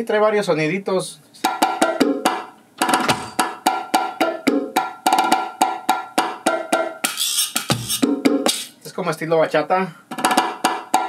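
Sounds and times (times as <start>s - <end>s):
pitched hand-drum hits: 1.4s - 8.7s
deep thumps: 2.9s - 3.5s.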